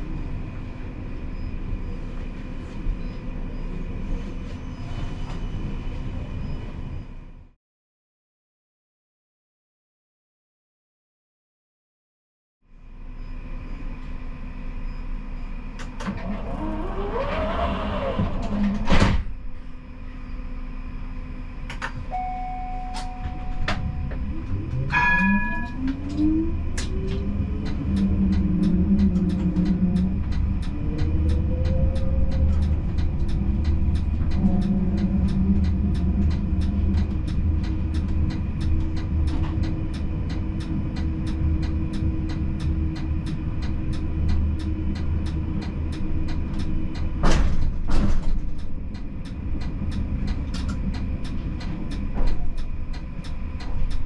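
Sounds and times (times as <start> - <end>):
electrical hum: 19.6 - 48.0
short beeps: 22.1 - 24.2
steady clicking: 25.6 - 54.0.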